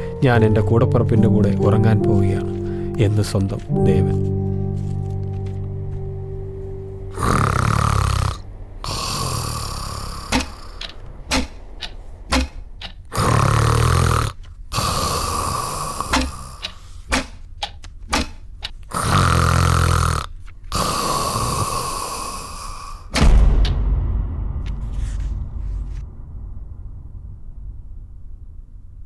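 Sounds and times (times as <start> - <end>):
man snoring: 7.1 - 11.0, 13.1 - 16.8, 18.9 - 23.1
hissing out-breath: 13.1 - 17.1, 18.9 - 23.1.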